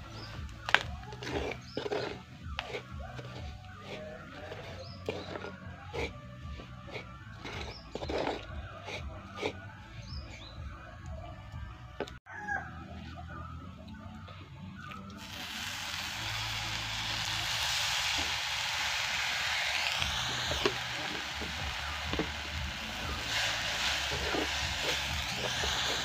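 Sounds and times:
sizzling in a hot clay pot: 0.0 - 9.0, 15.2 - 26.0.

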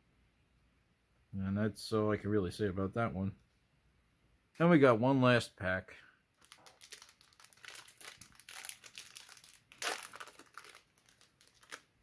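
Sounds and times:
card pack wrapper crinkling: 6.4 - 12.0.

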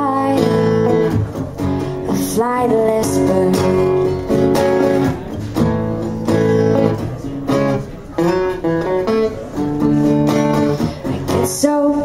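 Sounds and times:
acoustic guitar strumming: 0.0 - 12.0.

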